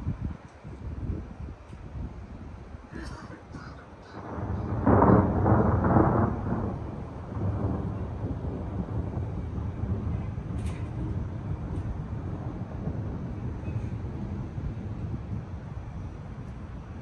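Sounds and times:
thunder rumbling: 0.0s - 17.0s.

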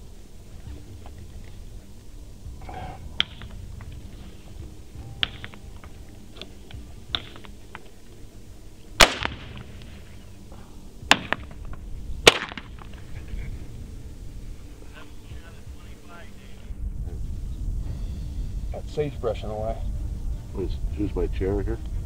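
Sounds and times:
faint sharp cracks: 9.0s - 10.0s, 11.1s - 13.0s
rifle shots: 9.0s - 10.0s, 11.0s - 11.6s, 12.2s - 13.0s.

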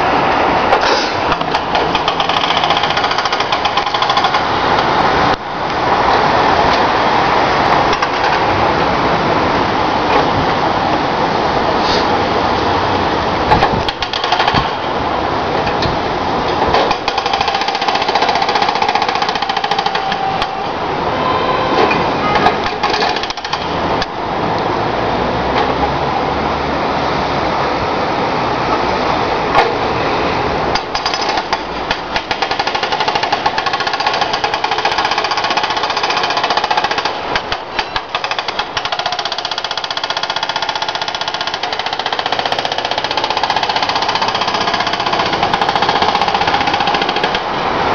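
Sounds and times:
hydraulic breaker hammering asphalt: 0.7s - 4.9s, 13.5s - 15.0s, 16.5s - 20.6s, 21.8s - 23.8s, 30.7s - 47.6s.

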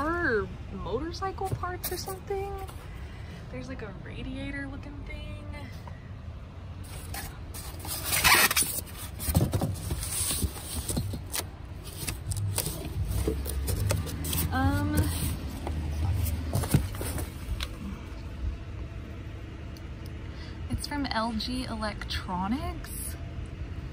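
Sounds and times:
packaging rustling and scraping: 6.8s - 17.8s.

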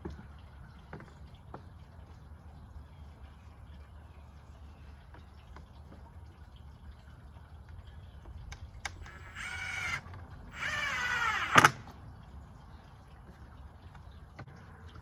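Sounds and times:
cordless drill driving screws: 9.0s - 11.8s.

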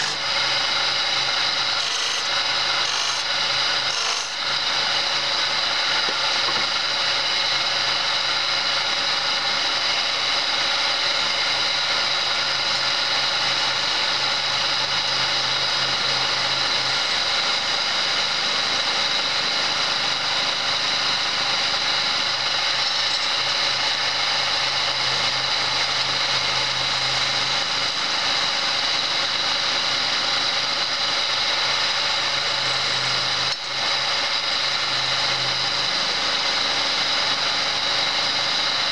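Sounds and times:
chisel scraping spinning wood: 0.0s - 7.0s
lathe motor humming: 0.0s - 38.9s.

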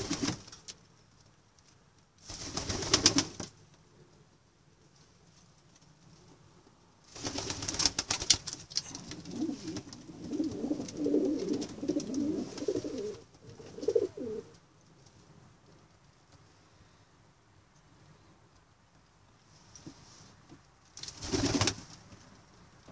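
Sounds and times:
pigeons cooing: 8.8s - 14.5s.

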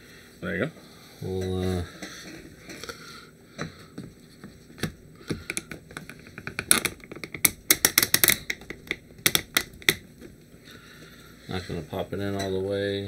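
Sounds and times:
plastic pieces clicking and tapping: 5.2s - 10.0s.

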